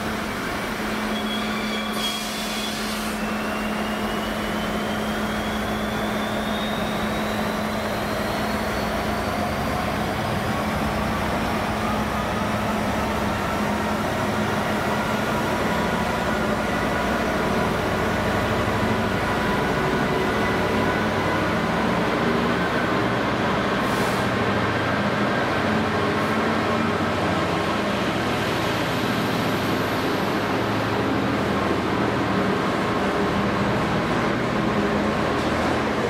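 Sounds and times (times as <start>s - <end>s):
brief hiss: 1.8s - 3.4s, 23.8s - 24.3s.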